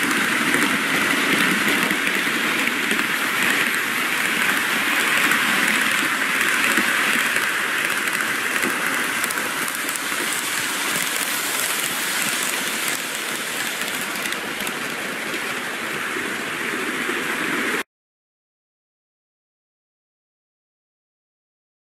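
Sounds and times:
model train rattling whir: 0.0s - 16.1s.

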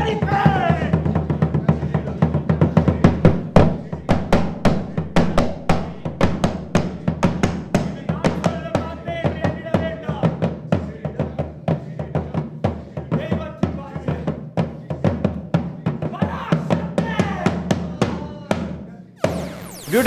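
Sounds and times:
rapid hand drumming: 0.0s - 18.2s
person chanting: 3.0s - 8.6s.

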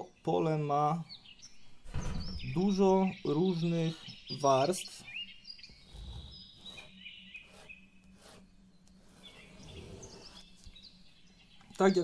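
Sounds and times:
faint bird chirps: 0.0s - 12.0s
pen scratching on paper: 5.7s - 10.5s.

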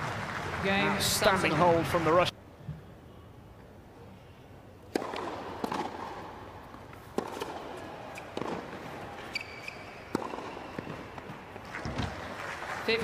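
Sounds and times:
arena ambience: 0.0s - 13.0s
tennis ball struck by rackets: 4.9s - 12.2s.

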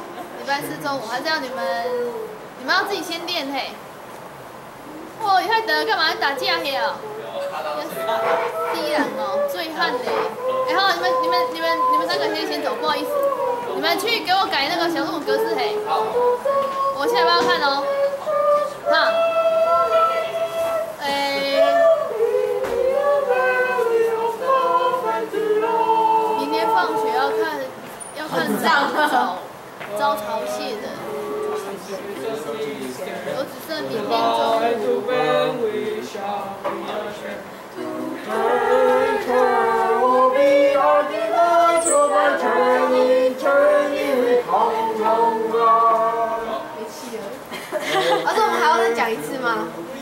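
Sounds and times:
girls singing unaccompanied: 0.0s - 3.0s, 4.8s - 50.0s
young woman singing: 7.8s - 20.2s, 21.0s - 29.3s.

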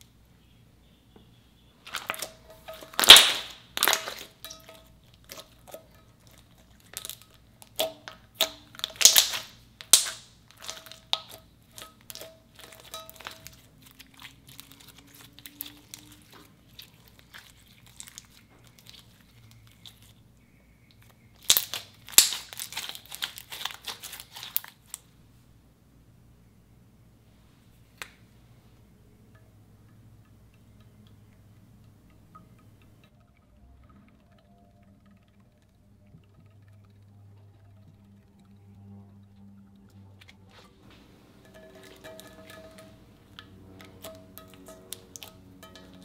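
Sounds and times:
slime crackling and popping: 1.9s - 20.2s, 20.9s - 25.0s.

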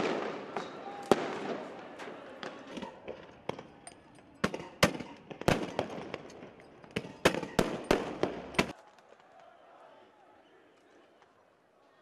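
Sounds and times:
gunshot bangs and pops: 4.4s - 8.7s.

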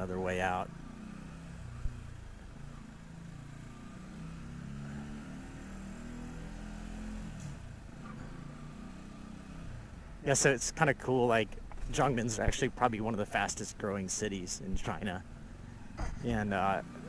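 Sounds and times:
muffled motorcycle engine running: 0.0s - 10.2s.

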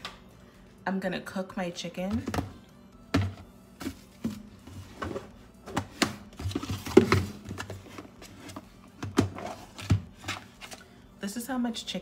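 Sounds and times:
kitchen items clattering on counter: 4.2s - 10.8s.

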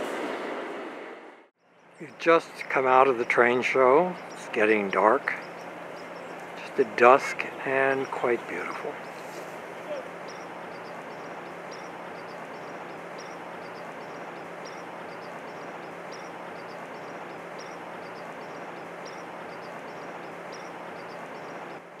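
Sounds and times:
constant low hum: 1.6s - 22.0s
high-pitched chirps: 9.0s - 21.9s.

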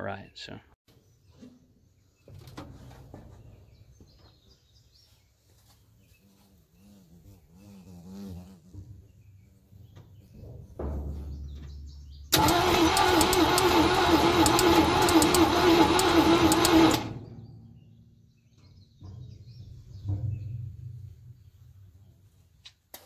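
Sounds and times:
starter motor cranking engine: 12.3s - 17.4s
sharp ticks: 12.4s - 17.1s.

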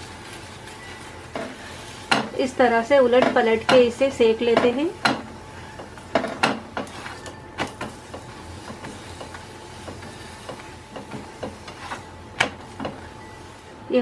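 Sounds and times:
spatula knocking on frying pan: 2.1s - 2.4s, 3.1s - 5.4s, 6.1s - 7.0s, 7.6s - 11.8s, 12.4s - 13.1s.

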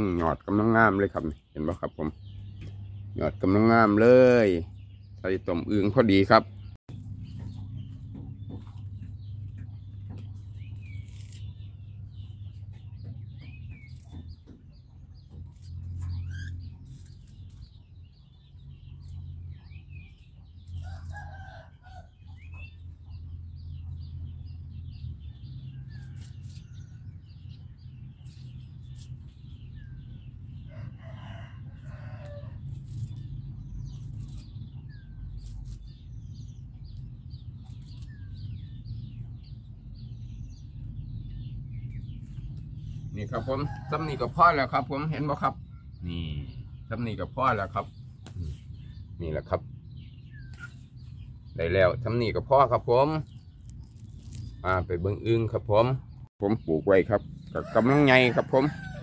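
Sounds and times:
birds chirping: 0.0s - 59.0s
twigs rustling and snapping: 10.6s - 11.7s, 15.3s - 17.7s, 20.6s - 21.4s, 32.6s - 34.7s, 35.3s - 36.0s, 36.9s - 38.3s, 53.3s - 54.6s
rooster crowing: 30.7s - 32.6s, 57.5s - 59.0s.

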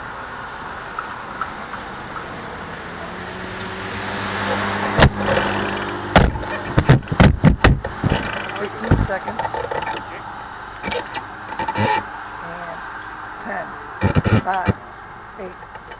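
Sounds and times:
sharp knocks: 4.9s - 10.1s, 14.0s - 14.8s.

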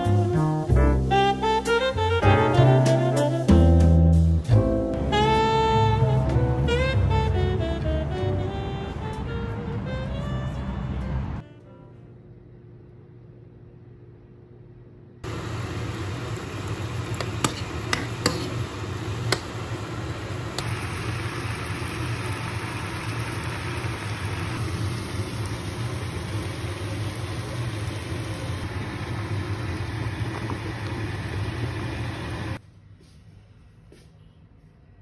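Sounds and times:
meat sizzling in oil: 15.3s - 32.6s.

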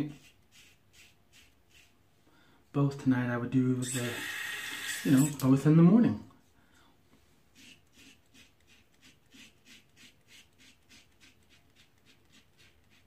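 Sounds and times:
razor scraping stubble: 7.5s - 13.0s.

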